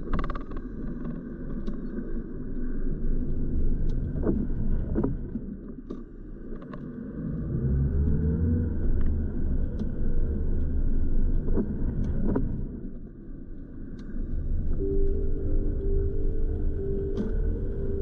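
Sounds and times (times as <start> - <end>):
car engine and tyres rumbling: 6.4 - 13.0, 14.2 - 18.0.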